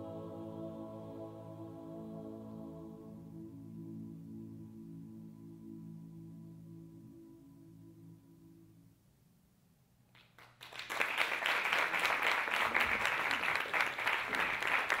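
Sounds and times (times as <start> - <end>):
audience applause: 10.4 - 15.0.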